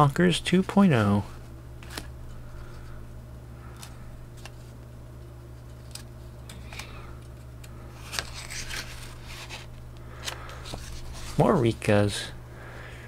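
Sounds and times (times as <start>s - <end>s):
low hum: 0.0s - 13.0s
paper pages turning: 5.6s - 7.0s, 8.0s - 11.7s.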